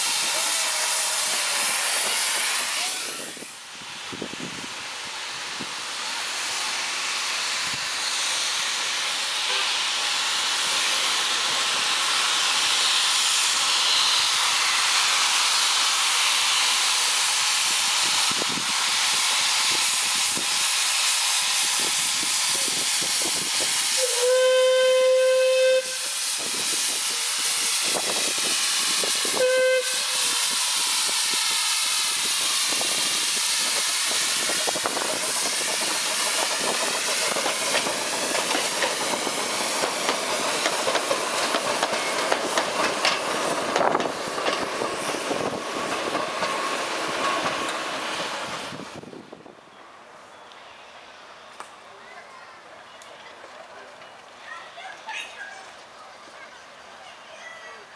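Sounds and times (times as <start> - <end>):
steam locomotive hissing: 0.0 - 49.6
steam whistle blasts: 23.9 - 33.6.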